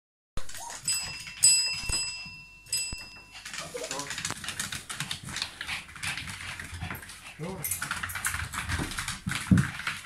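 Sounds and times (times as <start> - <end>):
dog claws clicking on tiles: 0.4 - 10.0
tap bell ringing: 0.8 - 3.6.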